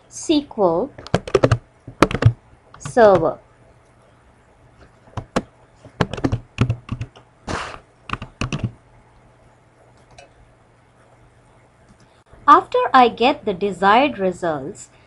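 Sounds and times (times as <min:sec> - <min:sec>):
typing on computer keyboard: 0:01.0 - 0:03.3, 0:05.2 - 0:07.2, 0:08.1 - 0:08.8.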